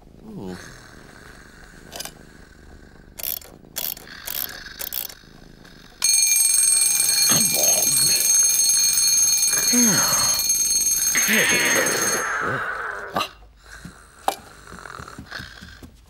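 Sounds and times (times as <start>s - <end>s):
alarm clock clicks: 6.0s - 12.4s
alarm clock bell ringing: 6.0s - 13.1s.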